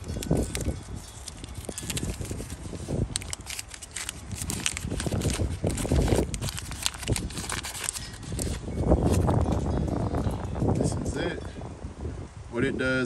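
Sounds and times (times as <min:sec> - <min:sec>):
paper wrapper crinkling: 0:00.0 - 0:09.7
wind rumbling on microphone: 0:00.0 - 0:13.0.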